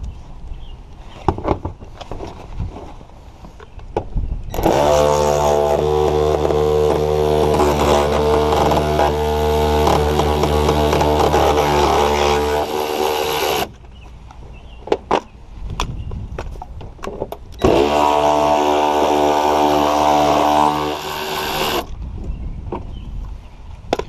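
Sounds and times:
cordless ratchet running: 0:04.5 - 0:13.7, 0:17.6 - 0:21.9.

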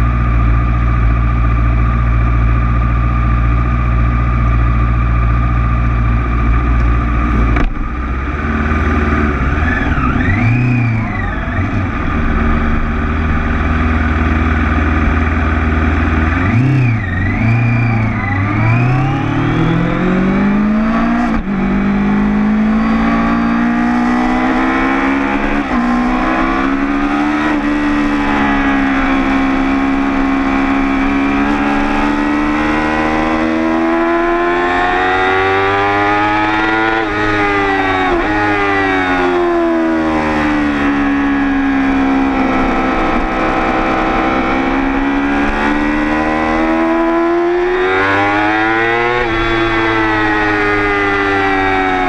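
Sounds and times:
motorcycle engine revving: 0:00.0 - 0:52.0.

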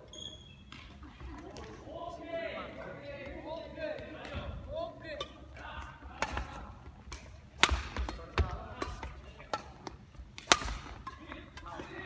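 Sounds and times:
rackets hitting shuttlecock: 0:05.2 - 0:12.0.

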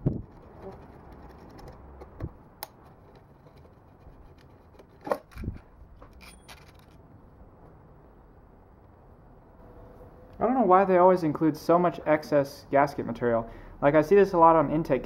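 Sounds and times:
small metal clicks and scrapes: 0:00.0 - 0:07.0.

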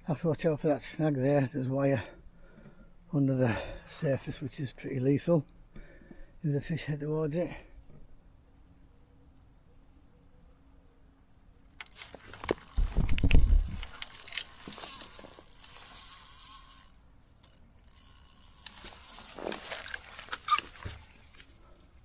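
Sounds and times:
fishing reel ratcheting and whirring: 0:11.8 - 0:20.9.

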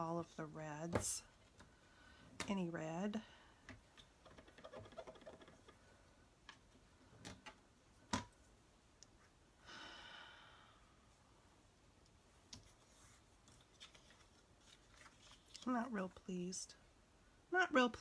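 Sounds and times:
soft breath: 0:01.6 - 0:02.4, 0:09.6 - 0:11.4.

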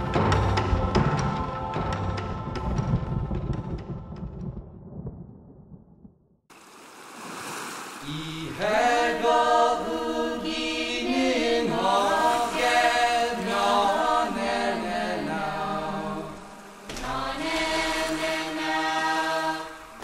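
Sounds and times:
choir chanting: 0:08.0 - 0:20.0.

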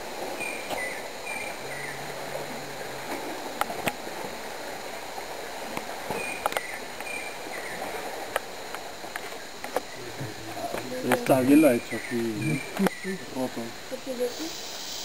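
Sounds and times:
steady rushing hiss: 0:00.0 - 0:15.0
high chirping calls: 0:11.6 - 0:13.3.

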